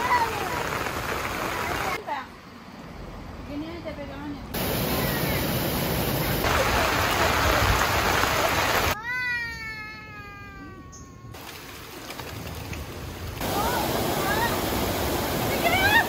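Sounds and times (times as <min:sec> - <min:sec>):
waterfall rushing: 0:00.0 - 0:02.0, 0:04.6 - 0:09.0, 0:13.4 - 0:16.0
soft hiss of rain: 0:00.0 - 0:03.6, 0:04.5 - 0:09.0, 0:11.3 - 0:16.0.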